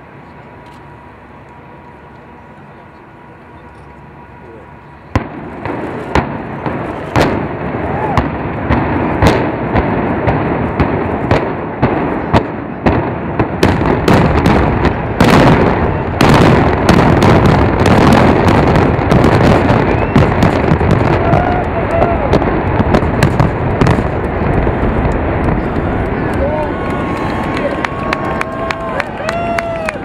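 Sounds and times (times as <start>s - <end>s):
demolition explosions: 5.1s - 29.0s.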